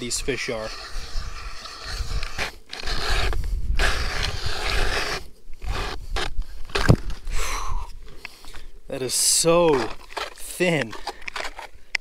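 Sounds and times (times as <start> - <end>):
ice auger grinding ice: 0.0 - 7.0, 9.1 - 11.8.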